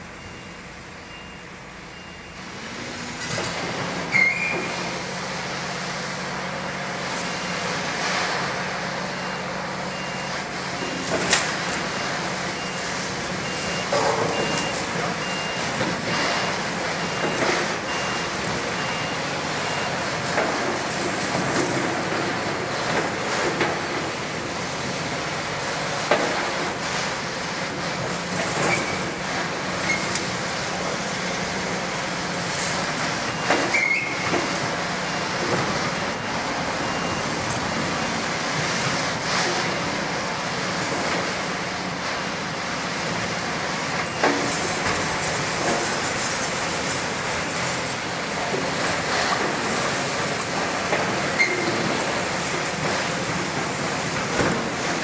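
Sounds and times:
excavators running: 0.0 - 55.0
high metal squeals: 4.1 - 4.7.

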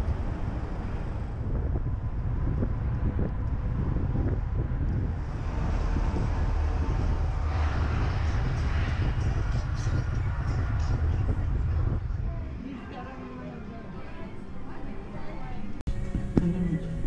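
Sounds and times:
wind buffeting a microphone: 0.0 - 12.6
car driving rumble: 0.0 - 12.7.

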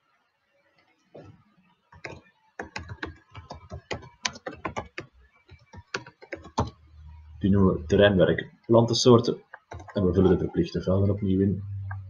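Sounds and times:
computer keyboard typing: 2.0 - 6.8, 9.5 - 10.0.

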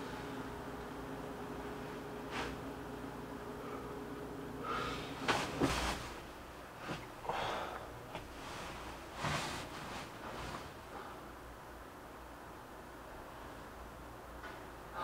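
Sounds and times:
bedding and clothing rustling: 1.6 - 3.9, 4.6 - 11.6
man breathing sharply and sniffing: 4.6 - 5.2.

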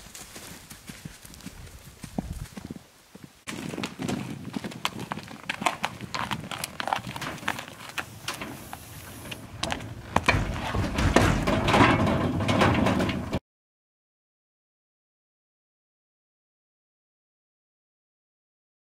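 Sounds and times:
horse hooves on gravel: 0.0 - 13.4
hooves on metal trailer floor: 3.5 - 13.4.

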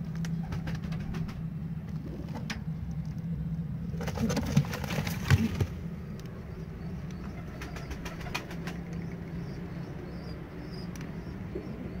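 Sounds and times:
steady low hum: 0.0 - 12.0
pigeons cooing: 6.5 - 12.0.

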